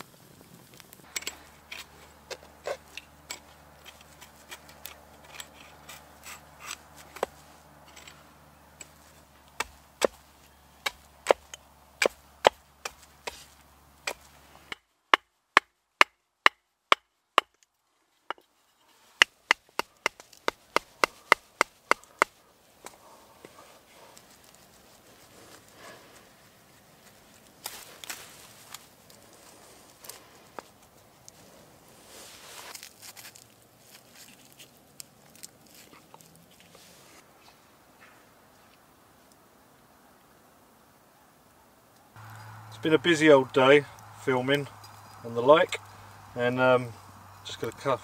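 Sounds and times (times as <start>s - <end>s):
wood fire crackling: 0.0s - 37.2s, 41.4s - 48.0s
hatchet chopping wood: 1.1s - 7.4s, 8.8s - 10.2s, 10.8s - 17.6s, 19.2s - 23.0s.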